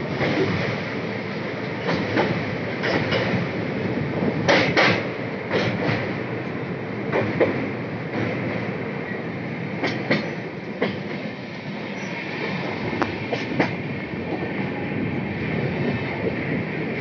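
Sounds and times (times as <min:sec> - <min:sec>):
train wheels rumbling on rail: 0:00.0 - 0:17.0
wheels clacking over rail joints: 0:01.7 - 0:14.6.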